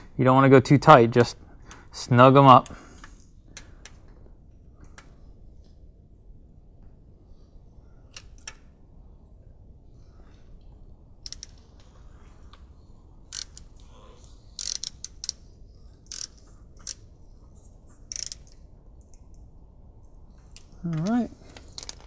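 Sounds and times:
hand ratchet clicking: 11.2 - 11.6, 13.3 - 13.7, 14.6 - 15.4, 16.0 - 17.0, 18.1 - 18.6.

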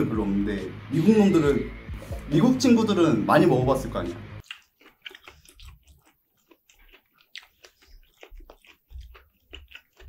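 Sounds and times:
person chewing meat: 4.4 - 10.0.

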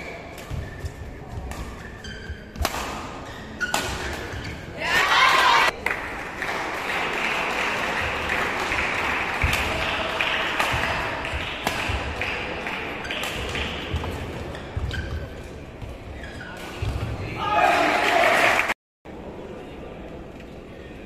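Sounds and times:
rackets striking shuttlecock: 2.5 - 4.4, 10.6 - 12.4.

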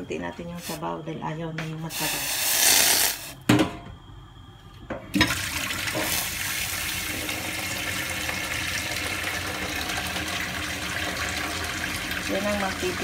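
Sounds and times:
water pouring into a metal sink: 5.2 - 13.0.

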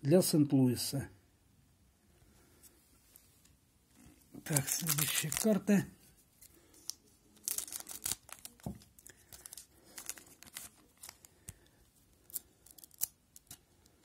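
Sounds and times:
foil wrapper tearing and crinkling: 4.4 - 5.8, 6.8 - 11.3, 12.2 - 13.6.

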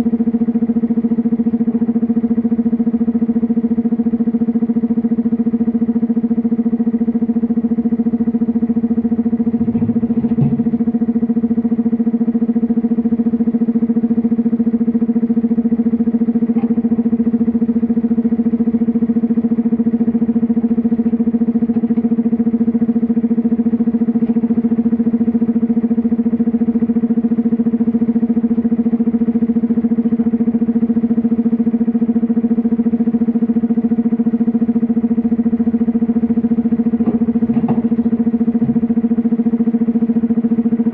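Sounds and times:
excavator engine drone: 0.0 - 40.9
low thuds: 9.5 - 11.0.

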